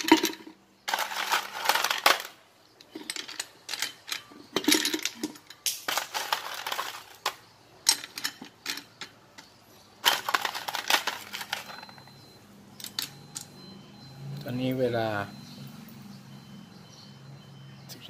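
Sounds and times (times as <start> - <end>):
ice cubes clattering into bottle: 0.0 - 8.9, 10.0 - 12.0.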